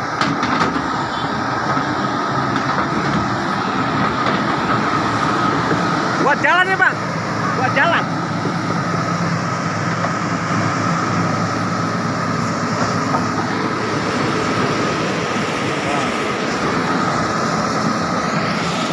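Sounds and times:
excavator diesel engine running: 0:00.0 - 0:18.9.

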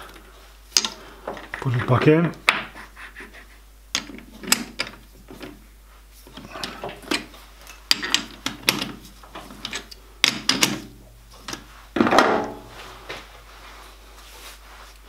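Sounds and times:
metallic clicks and knocks: 0:00.8 - 0:01.6, 0:03.9 - 0:05.6, 0:06.3 - 0:12.6.

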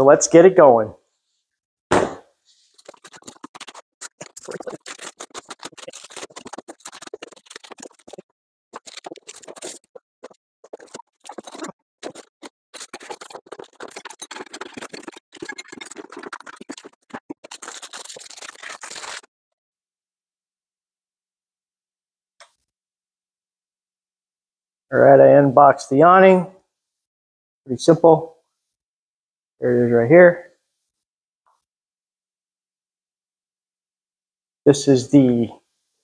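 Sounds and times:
short thump: 0:01.9 - 0:02.3.

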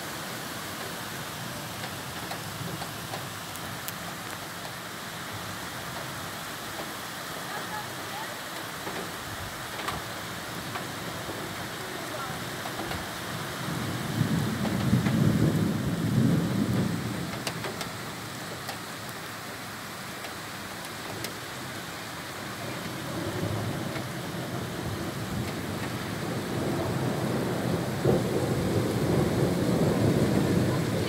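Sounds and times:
heavy rain pouring: 0:00.0 - 0:31.0
sharp ticks of raindrops: 0:00.1 - 0:31.0
thunder rumbling: 0:10.0 - 0:19.2, 0:22.4 - 0:31.0.

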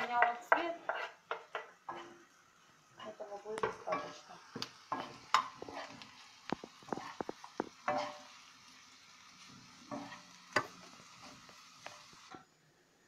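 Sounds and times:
metal spoon scraping frying pan: 0:00.0 - 0:02.2, 0:04.9 - 0:08.4, 0:09.8 - 0:12.2
vegetables sizzling in oil: 0:00.0 - 0:12.8.

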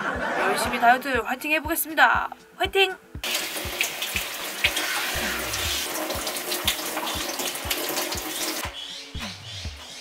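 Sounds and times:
soft low beat: 0:00.0 - 0:03.3.

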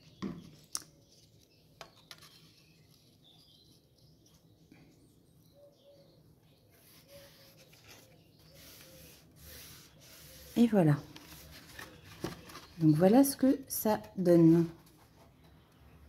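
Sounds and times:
paper rubbing on card: 0:06.8 - 0:11.8.

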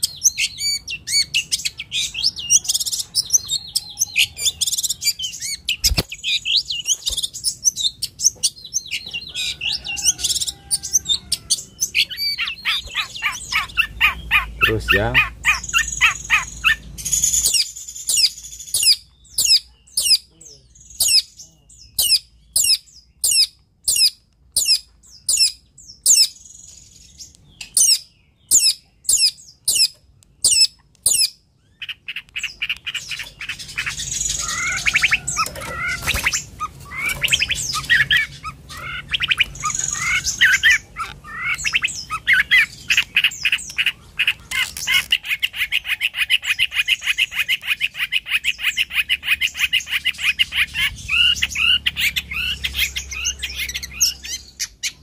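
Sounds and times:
shrike singing: 0:31.9 - 0:55.0.

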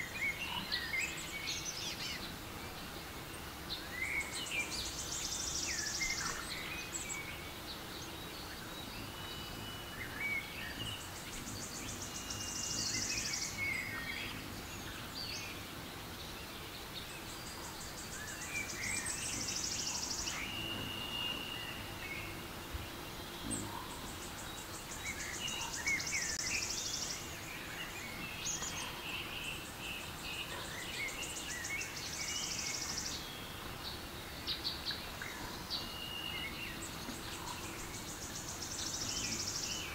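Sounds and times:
birds chirping and whistling: 0:17.9 - 0:39.9.

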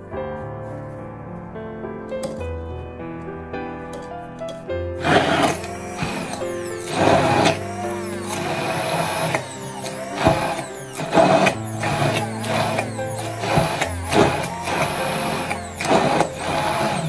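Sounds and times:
stick blender pureeing: 0:05.0 - 0:17.0.

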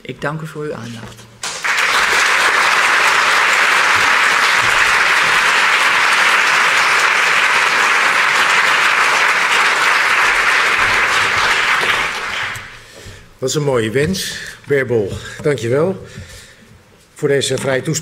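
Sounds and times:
audience applauding: 0:01.4 - 0:12.9.

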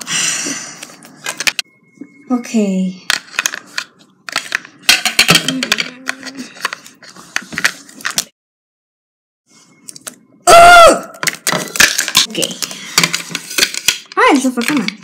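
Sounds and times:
plastic toys clicking on floor: 0:11.2 - 0:15.0.

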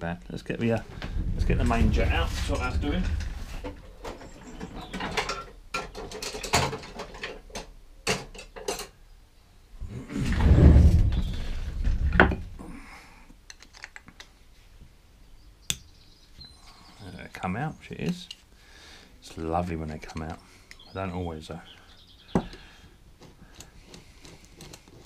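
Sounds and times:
rumbling shuffle: 0:00.6 - 0:04.9, 0:09.8 - 0:12.6
hand tools clicking and clattering: 0:02.4 - 0:09.0, 0:23.2 - 0:25.0.

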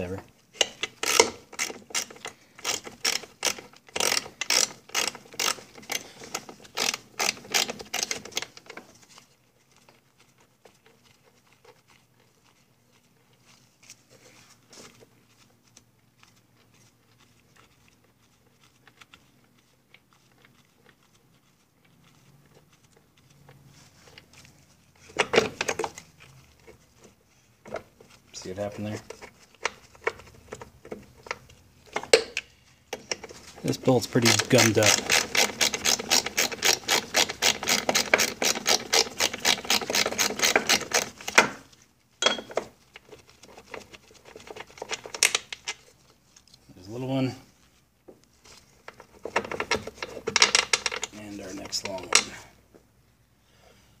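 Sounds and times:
ratchet wrench clicking: 0:00.7 - 0:06.0.

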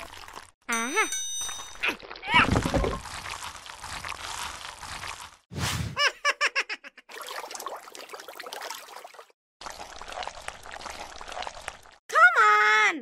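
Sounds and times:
water trickling and sloshing: 0:00.0 - 0:00.6, 0:01.4 - 0:05.5, 0:07.1 - 0:12.0.

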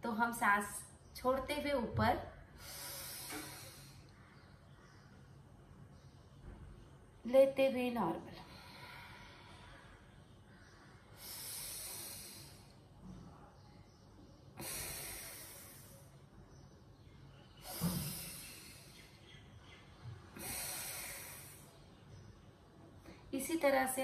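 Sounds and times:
woman breathing: 0:02.4 - 0:04.7, 0:08.3 - 0:13.0, 0:14.5 - 0:16.2, 0:17.6 - 0:19.3, 0:20.3 - 0:22.0.

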